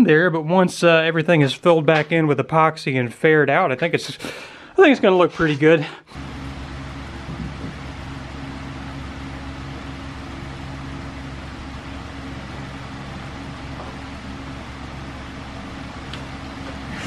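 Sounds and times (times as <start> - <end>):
mechanical hum: 6.1 - 17.0.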